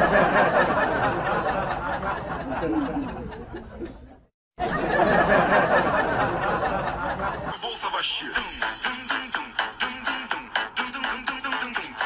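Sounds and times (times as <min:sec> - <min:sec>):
people chattering and laughing: 0:00.0 - 0:07.9.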